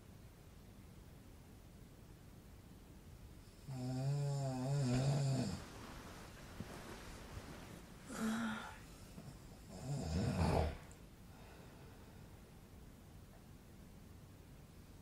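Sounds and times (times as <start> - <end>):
man snoring: 3.6 - 5.6, 9.6 - 10.9.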